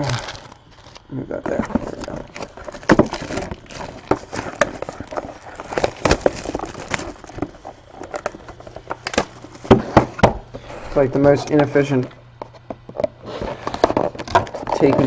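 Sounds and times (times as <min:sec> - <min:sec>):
plastic shrink-wrap crinkling: 0:00.0 - 0:09.6
cardboard boxes being handled: 0:01.4 - 0:10.4.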